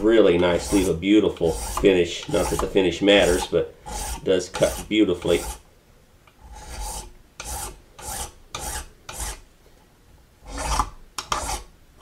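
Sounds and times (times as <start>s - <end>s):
hand file rasping brass: 0.4s - 5.6s, 6.4s - 9.4s, 10.5s - 11.7s.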